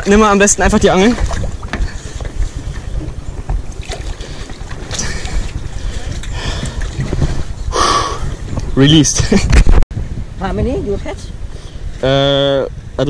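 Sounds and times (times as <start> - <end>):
faint water moving: 0.0 - 9.2
wind buffeting microphone: 0.0 - 13.0.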